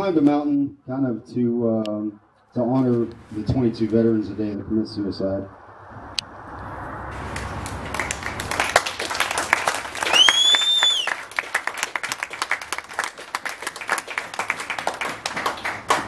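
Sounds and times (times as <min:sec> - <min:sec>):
audience applauding: 0:07.3 - 0:16.0
high whistle from crowd: 0:10.0 - 0:11.2.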